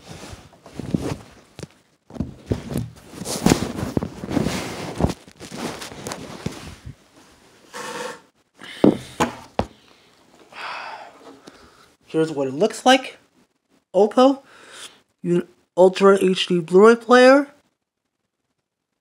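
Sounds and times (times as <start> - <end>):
handling knocks and bumps: 0.6 - 6.7, 8.8 - 9.8
phone rubbing against blanket: 3.1 - 7.0.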